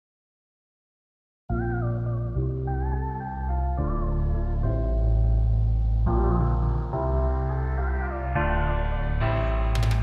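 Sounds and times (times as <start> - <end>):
synth chords over bass: 1.5 - 10.0.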